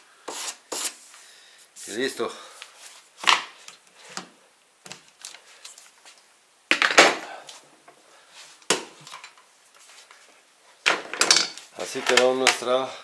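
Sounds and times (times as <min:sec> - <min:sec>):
tools clattering on a workbench: 0:08.7 - 0:09.5, 0:10.8 - 0:12.7.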